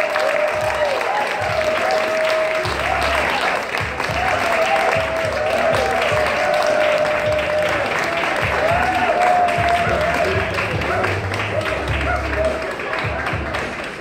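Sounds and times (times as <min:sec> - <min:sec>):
crowd applauding: 0:00.0 - 0:14.0
loud music with thumping beat: 0:03.8 - 0:14.0.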